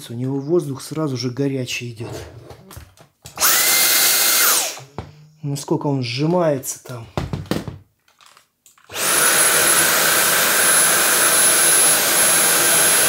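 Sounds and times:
handheld vacuum motor whining: 3.4 - 4.9, 8.9 - 13.0.

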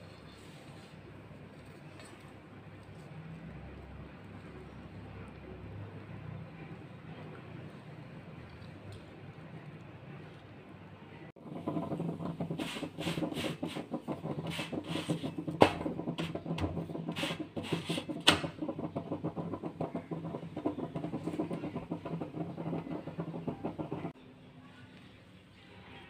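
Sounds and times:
flatbread crackling on hot iron: 11.4 - 24.2
steady low hum: 11.4 - 24.2.

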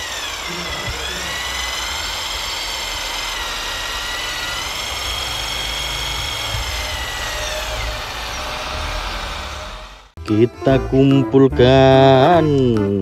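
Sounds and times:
hydraulic pump motor whine: 0.0 - 10.2.

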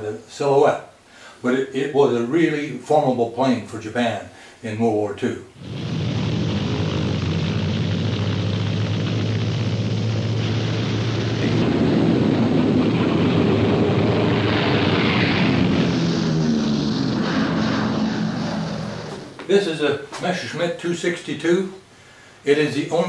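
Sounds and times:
aircraft engine drone: 5.6 - 19.5.

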